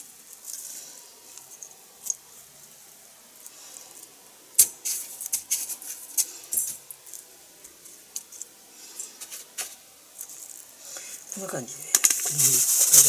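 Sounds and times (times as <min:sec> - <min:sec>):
breadcrumbs crackling under hands: 0:11.4 - 0:13.0.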